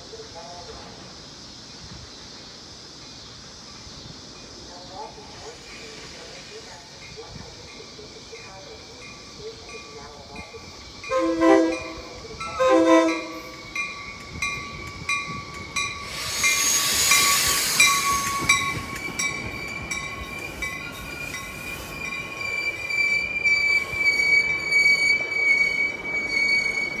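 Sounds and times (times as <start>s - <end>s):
train horn blasts: 11.0s - 13.8s
train wheels clicking over rails: 13.3s - 27.0s
high-pitched wheel squeal: 16.0s - 27.0s.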